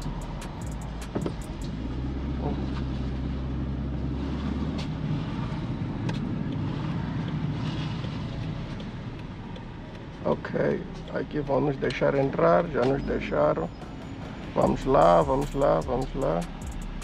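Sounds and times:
car engine and road hum: 0.0s - 17.0s.

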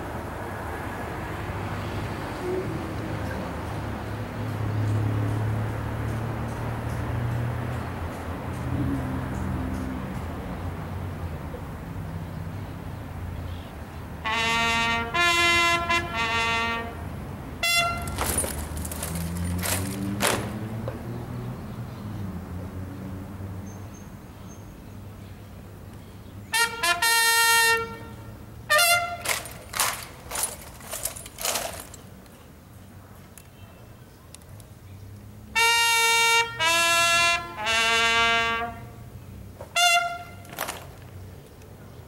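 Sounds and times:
bugle call: 14.2s - 17.0s, 17.6s - 20.6s, 26.5s - 31.9s, 35.6s - 39.0s, 39.7s - 40.9s.

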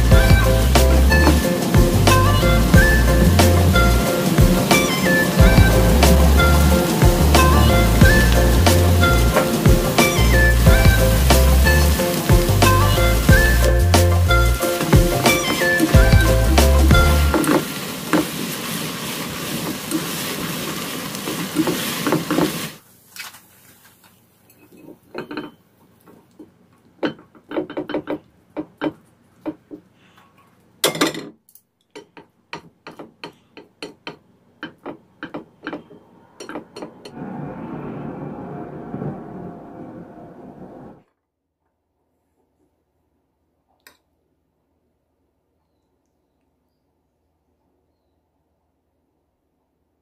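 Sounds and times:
food sizzling in a frying pan: 0.0s - 22.8s.

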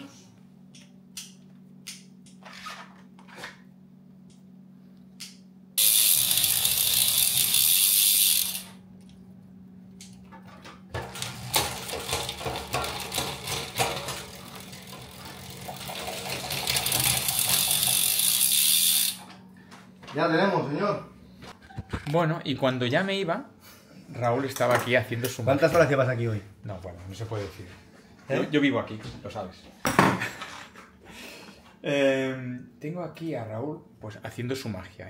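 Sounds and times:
fast ratcheting clicks: 5.8s - 8.8s, 13.0s - 19.2s.

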